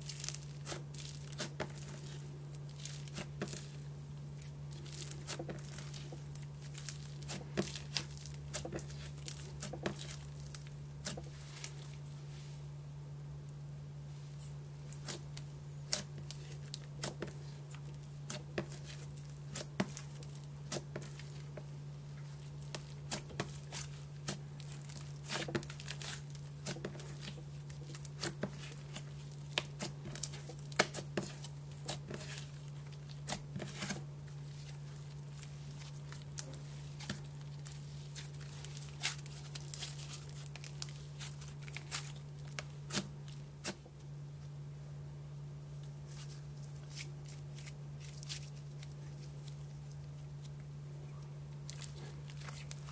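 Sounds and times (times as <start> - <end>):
slime squished by hand: 14.4 - 43.9, 51.5 - 52.9.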